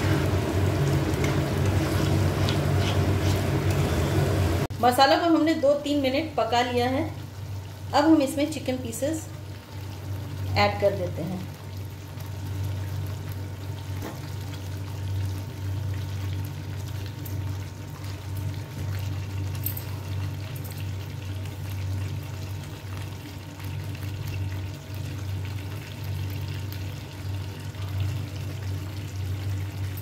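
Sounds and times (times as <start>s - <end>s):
low hum: 0.0s - 4.8s
chicken sizzling in a pan: 0.0s - 30.0s.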